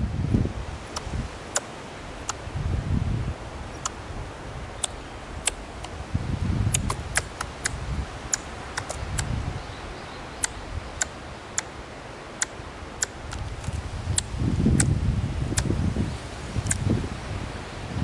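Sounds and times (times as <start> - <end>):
squirrel clicking calls: 0.9 - 2.4, 3.7 - 4.0, 4.8 - 6.0, 6.6 - 9.4, 10.4 - 11.8, 12.4 - 15.7.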